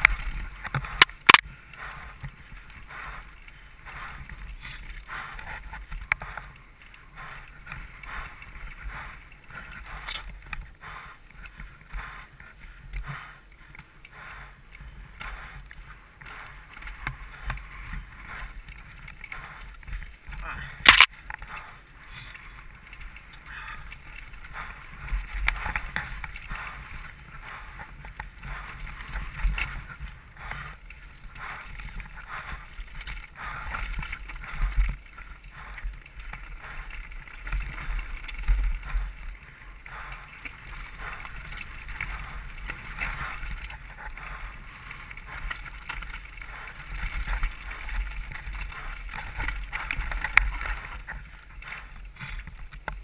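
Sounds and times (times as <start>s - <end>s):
bike tyres rolling over stones: 0.0s - 12.9s, 14.6s - 53.0s
bike rattling over bumps: 14.6s - 53.0s.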